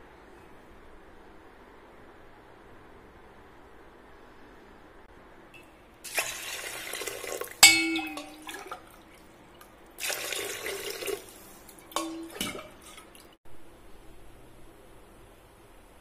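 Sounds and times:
water pouring into metal pot: 6.0s - 13.4s
metallic clank ringing: 7.6s - 8.5s.

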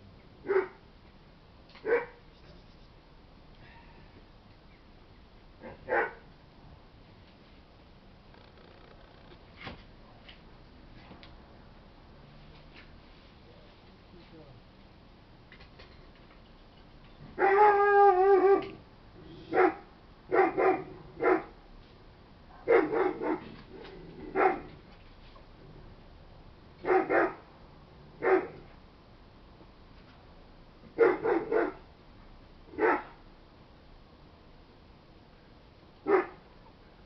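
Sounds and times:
dog barking: 0.4s - 0.8s, 1.8s - 2.2s, 5.6s - 6.2s, 17.4s - 18.7s, 19.5s - 21.5s, 22.5s - 23.5s, 24.4s - 24.7s, 26.8s - 27.4s, 28.2s - 28.6s, 31.0s - 31.8s, 32.8s - 33.2s, 36.0s - 36.4s.

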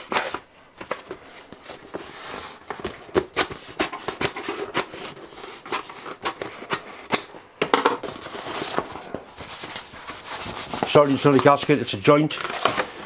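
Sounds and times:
paper crackling and rustling: 8.1s - 13.0s.

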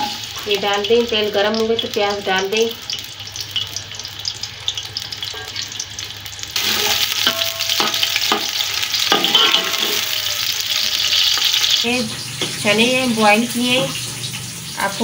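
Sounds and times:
onions sizzling in oil: 0.0s - 15.0s
spoon clinking against pot: 6.6s - 10.1s.

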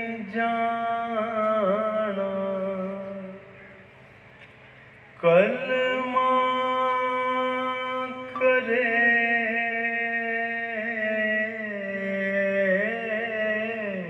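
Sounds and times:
man chanting: 0.0s - 3.8s, 5.2s - 14.0s.

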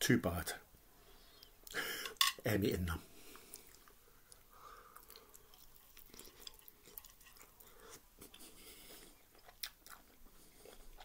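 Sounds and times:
faint chewing: 3.2s - 11.0s.

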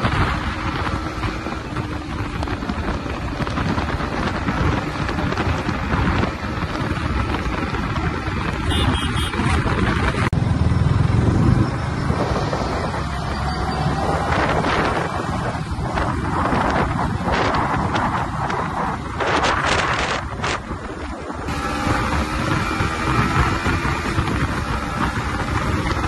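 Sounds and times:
motorcycle engine: 0.0s - 26.0s
road noise: 0.0s - 26.0s
wind rushing over microphone: 0.0s - 26.0s
deeper rumble: 9.5s - 26.0s.

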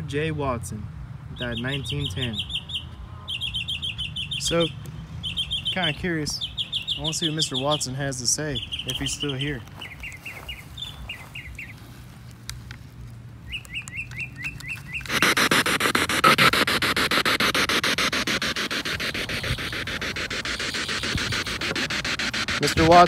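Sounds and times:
small bird chirping: 1.3s - 11.9s, 13.4s - 22.9s
pulsing radio static: 15.0s - 23.0s.

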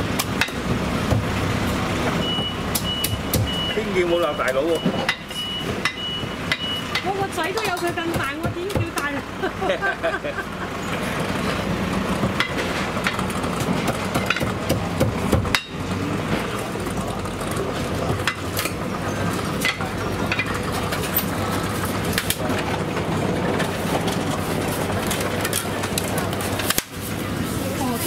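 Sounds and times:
voices: 1.7s - 11.6s
kitchen noise: 1.7s - 28.0s.

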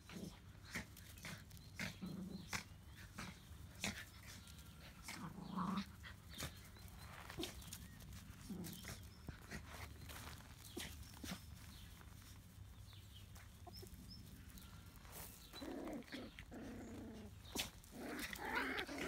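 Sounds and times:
puppies growling: 0.0s - 7.7s, 8.3s - 9.9s, 13.6s - 19.0s.

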